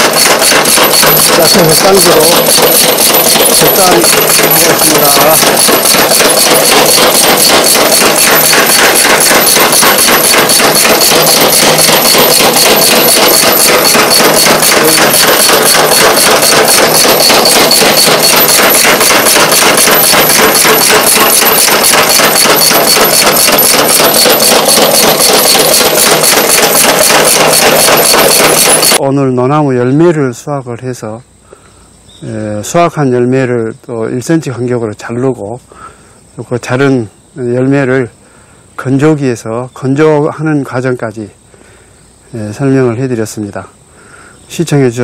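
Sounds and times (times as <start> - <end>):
machine blade chopping: 0.0 - 29.0
motor hum: 0.0 - 29.0.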